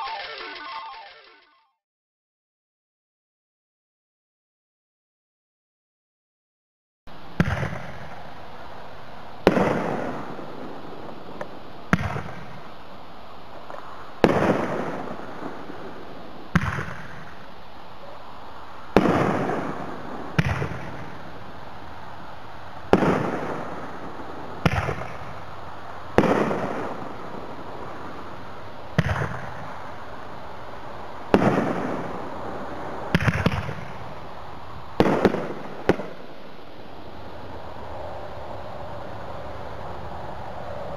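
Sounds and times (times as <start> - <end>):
steady hiss: 7.1 - 40.9
firework bangs: 9.4 - 11.3, 13.8 - 17.4, 18.9 - 21.3, 22.8 - 25.5, 26.1 - 28.2, 28.9 - 30.0, 31.3 - 34.3, 35.0 - 36.3.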